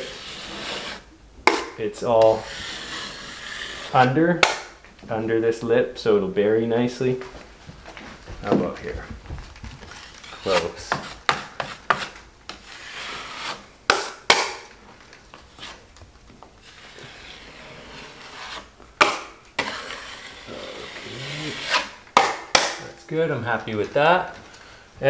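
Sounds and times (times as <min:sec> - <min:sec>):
taping knife scraping compound: 0:00.0 - 0:04.8, 0:09.8 - 0:14.7, 0:15.3 - 0:16.0, 0:16.6 - 0:22.9.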